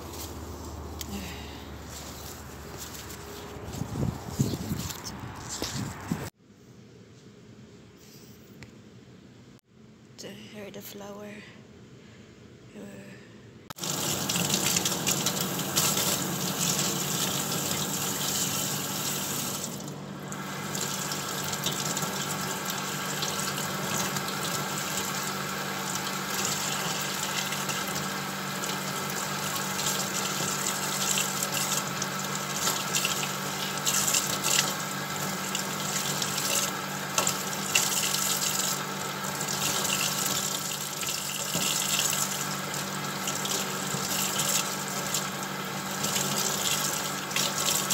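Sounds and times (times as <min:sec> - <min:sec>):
faucet running into metal sink: 0:13.8 - 0:47.9.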